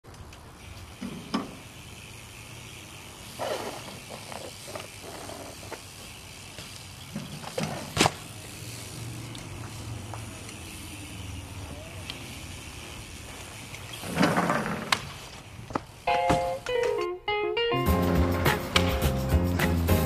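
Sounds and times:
bike tyres rolling on concrete: 0.0 - 17.0
bike knocking on ledges: 3.4 - 8.3, 14.0 - 17.0.

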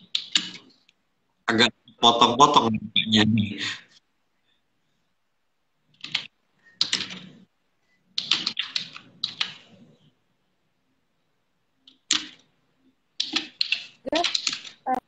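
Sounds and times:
woman's garbled speech on call: 14.1 - 14.3.

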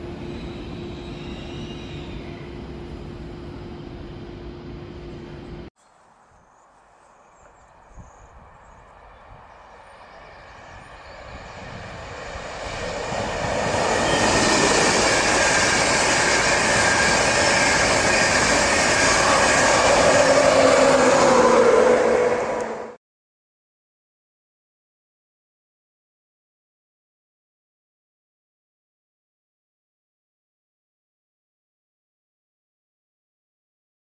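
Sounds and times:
hum: 0.0 - 5.7
train wheels rumbling on rails: 7.4 - 22.9.

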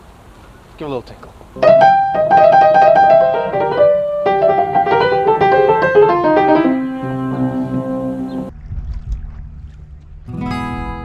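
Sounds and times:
piano notes and chord: 1.6 - 8.5.

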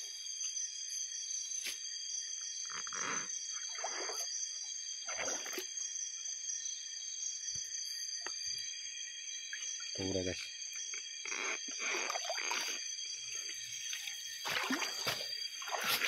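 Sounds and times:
insects calling: 0.0 - 16.0
net swishing through water: 14.0 - 16.0.

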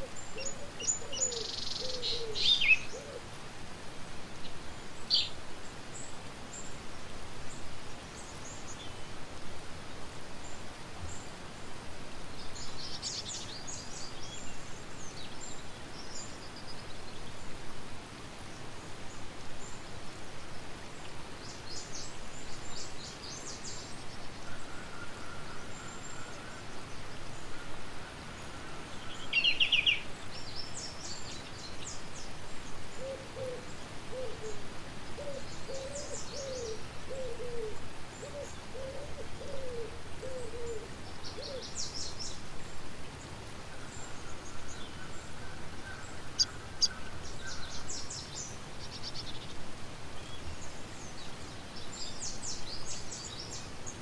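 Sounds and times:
low falling cooing: 0.0 - 3.3, 33.0 - 41.7.

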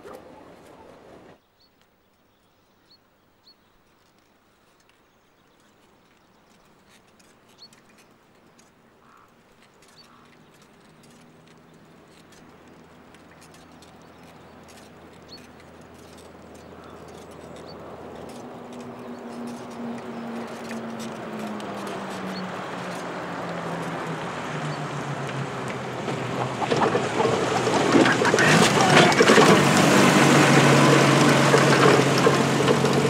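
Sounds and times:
birds chirping: 0.0 - 33.0
distant truck engine hum: 8.6 - 33.0.

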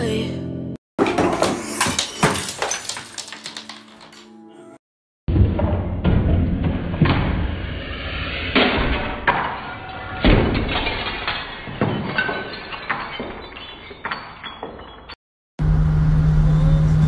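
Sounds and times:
objects crashing and breaking: 1.0 - 4.3, 5.3 - 15.2
glassy clinks and rattles: 1.6 - 4.3, 10.7 - 15.2
vehicle engine hum: 15.6 - 17.0.

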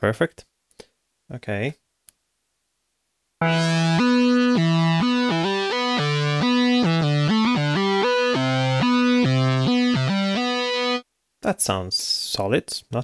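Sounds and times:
synth lead melody: 3.4 - 11.0.

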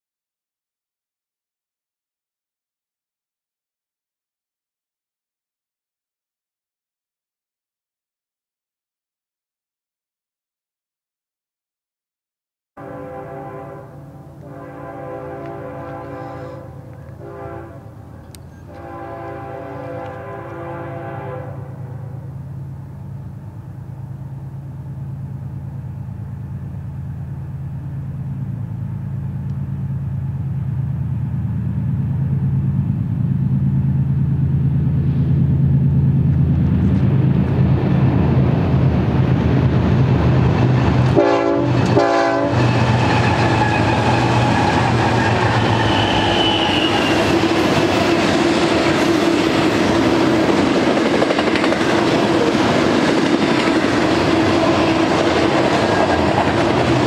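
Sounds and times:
train horn blast: 12.8 - 22.6, 41.0 - 48.3
diesel locomotive drone: 12.8 - 57.0
wheels on rails: 17.8 - 19.0, 22.3 - 57.0
high wheel squeal: 18.0 - 18.8, 42.6 - 48.3.

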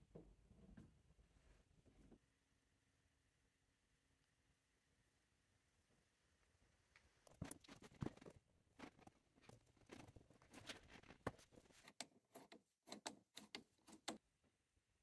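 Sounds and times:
rubber hose rubbing and rustling: 7.4 - 12.5.

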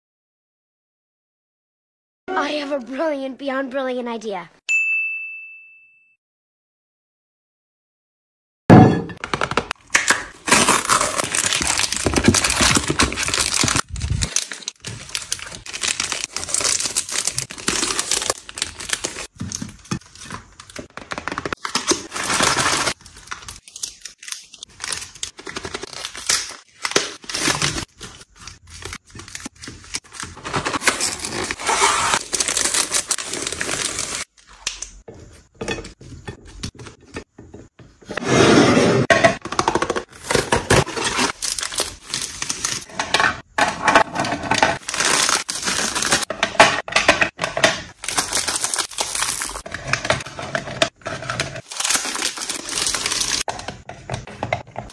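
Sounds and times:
plastic wrappers crinkling: 10.3 - 35.0, 39.6 - 46.4, 47.0 - 54.9.

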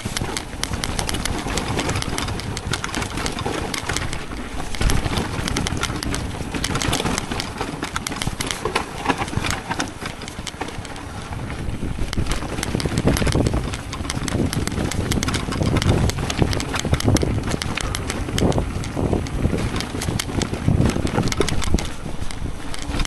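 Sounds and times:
bike clicks and rattles: 0.0 - 23.0
bike tyres crunching over gravel: 0.0 - 23.0
wind rumble on microphone: 0.0 - 23.0.

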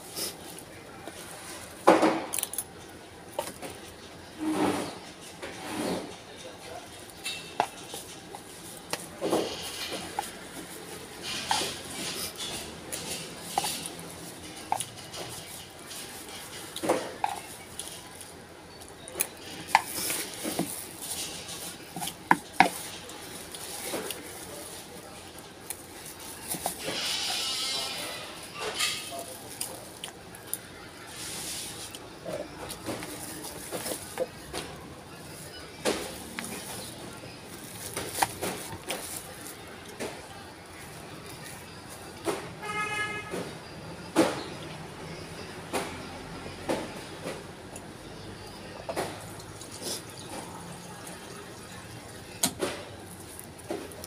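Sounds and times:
spoon scooping food from bag: 7.1 - 42.0
spoon scraping a bowl: 26.4 - 29.1
plastic bag crinkling: 32.6 - 42.0.

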